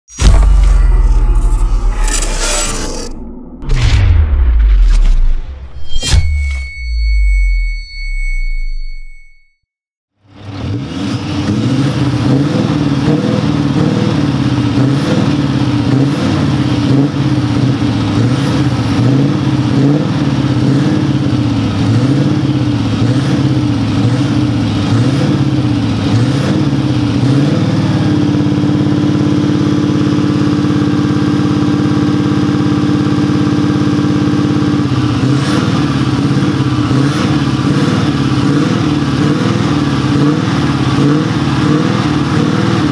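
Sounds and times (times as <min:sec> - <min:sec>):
diesel engine revving: 0:10.2 - 0:42.9.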